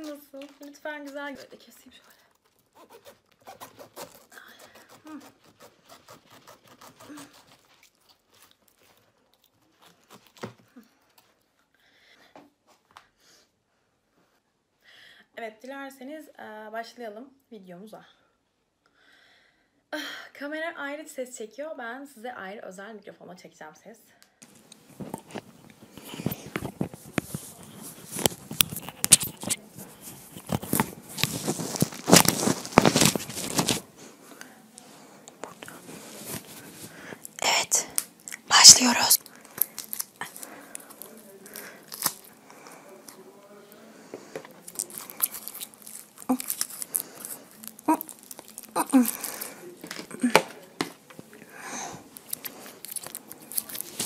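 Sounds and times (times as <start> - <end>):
microphone handling rustling: 24.8 - 33.9.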